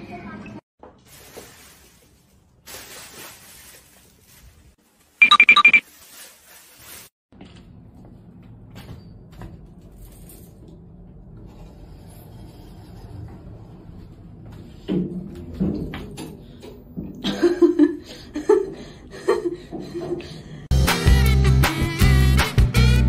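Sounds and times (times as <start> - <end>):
rapid high-pitched beeps: 5.2 - 5.8.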